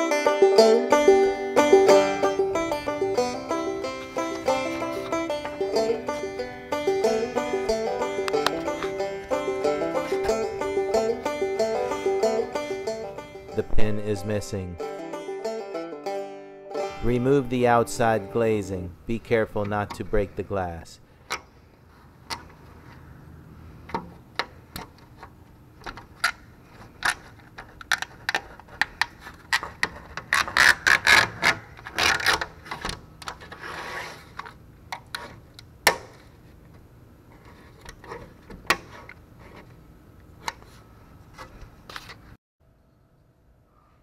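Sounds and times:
scraping and rasping on metal: 0:33.4 - 0:34.4.

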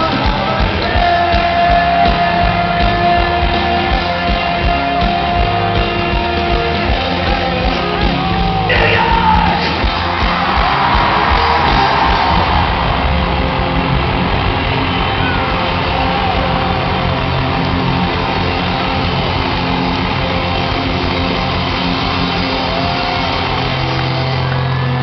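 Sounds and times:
person singing: 0:00.0 - 0:09.8
live rock band playing: 0:00.0 - 0:25.0
crowd shouting: 0:00.9 - 0:25.0.

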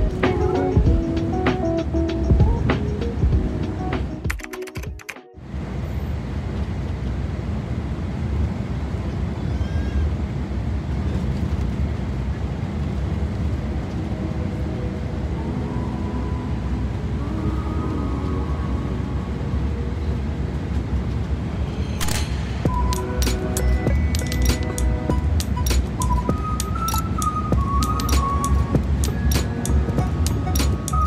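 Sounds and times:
bus engine and road rumble: 0:00.0 - 0:04.4, 0:05.4 - 0:31.0
background music: 0:00.0 - 0:05.4, 0:22.0 - 0:31.0.

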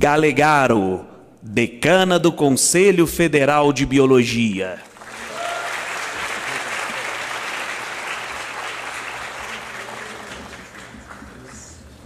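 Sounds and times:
audience applauding: 0:04.8 - 0:12.0.

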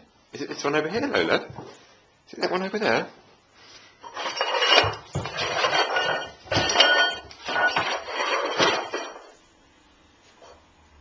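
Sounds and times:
thin metallic ringing: 0:04.0 - 0:09.3
pots clattering on the floor: 0:04.0 - 0:09.4.

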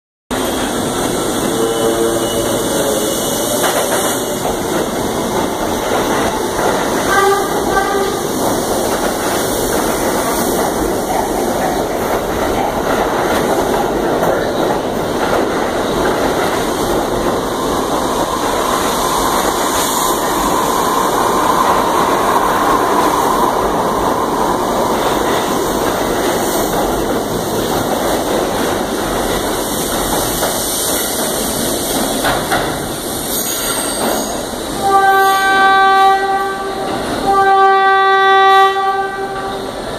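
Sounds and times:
subway train rumbling and rattling: 0:00.3 - 0:39.9
train horn tone: 0:01.4 - 0:03.7, 0:07.0 - 0:08.4, 0:34.8 - 0:39.7.

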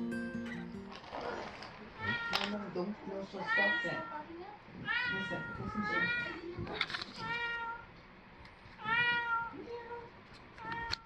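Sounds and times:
cat meowing: 0:02.0 - 0:02.7, 0:03.4 - 0:04.2, 0:04.8 - 0:06.4, 0:07.2 - 0:07.9, 0:08.8 - 0:09.6, 0:10.6 - 0:11.0.

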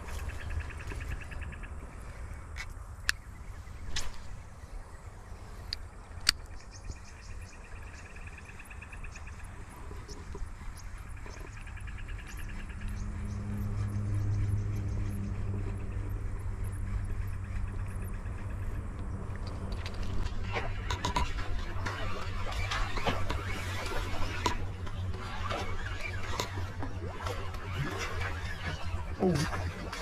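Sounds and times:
insects chirping in trills: 0:00.0 - 0:30.0
low steady hum: 0:00.0 - 0:30.0.

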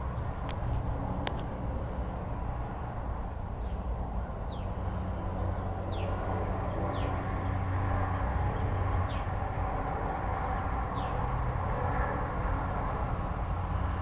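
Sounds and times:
low outdoor rumble: 0:00.0 - 0:14.0
bird chirping: 0:04.5 - 0:04.7, 0:05.9 - 0:06.2, 0:08.6 - 0:09.3, 0:10.9 - 0:11.2.

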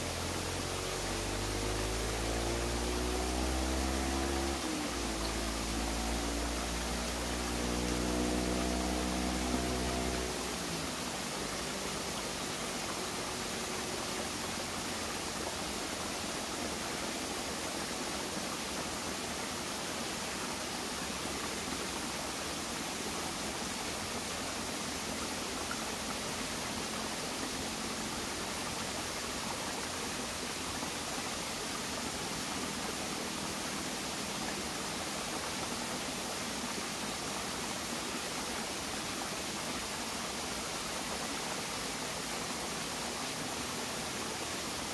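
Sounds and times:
stream rushing over stones: 0:00.0 - 0:44.9.

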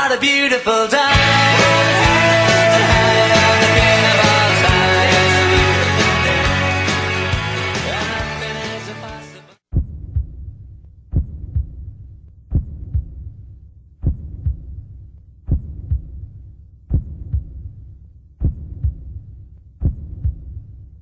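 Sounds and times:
heartbeat thumps: 0:09.7 - 0:17.8, 0:18.4 - 0:20.8.

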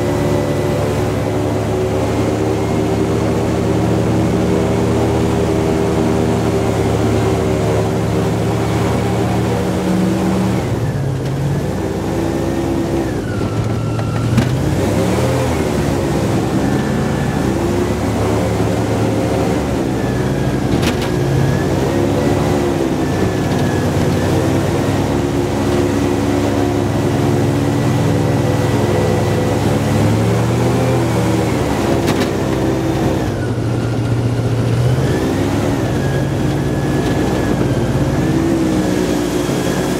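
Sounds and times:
airboat engine and propeller: 0:00.0 - 0:39.9.

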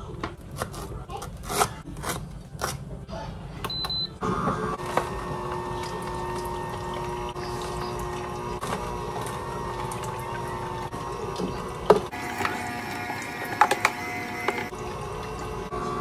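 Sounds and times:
juicer motor humming: 0:03.7 - 0:16.0.

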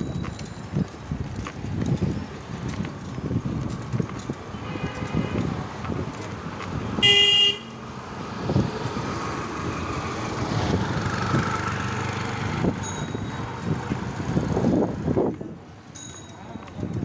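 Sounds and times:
road noise: 0:00.0 - 0:17.0
vehicle horn toot: 0:04.6 - 0:05.4, 0:07.0 - 0:07.8.

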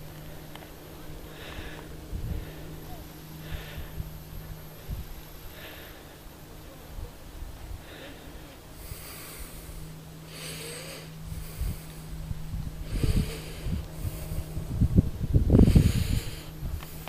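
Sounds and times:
wind buffeting microphone: 0:00.0 - 0:17.0
person breathing and sniffing: 0:07.8 - 0:12.2, 0:12.8 - 0:14.8, 0:15.6 - 0:17.0.

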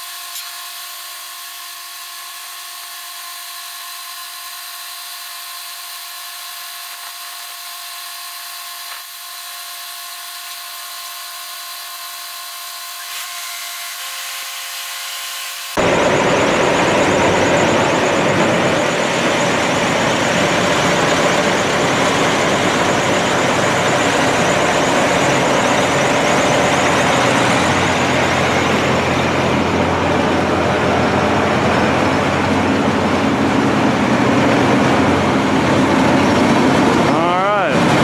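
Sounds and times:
tractor diesel engine running: 0:15.8 - 0:38.0.

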